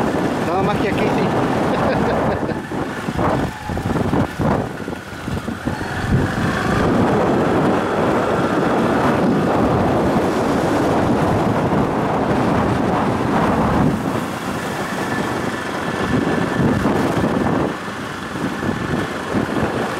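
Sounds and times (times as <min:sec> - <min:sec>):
motorcycle engine: 0:00.0 - 0:19.9
road noise: 0:00.0 - 0:19.9
wind buffeting microphone: 0:00.0 - 0:19.9.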